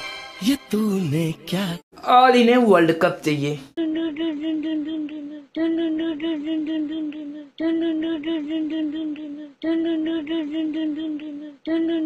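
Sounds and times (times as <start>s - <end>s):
person humming wavering note: 3.8s - 12.0s.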